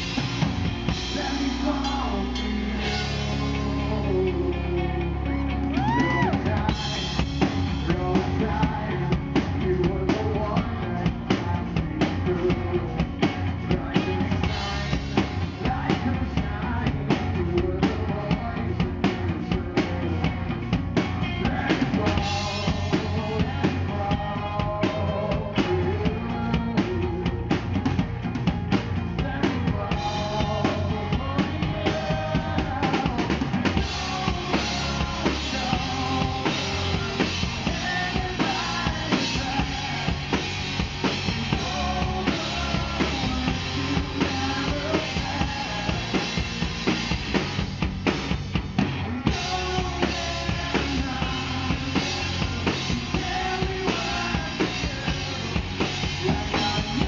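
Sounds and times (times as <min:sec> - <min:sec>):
electric guitar: 0:00.0 - 0:57.0
live rock band playing: 0:00.0 - 0:57.0.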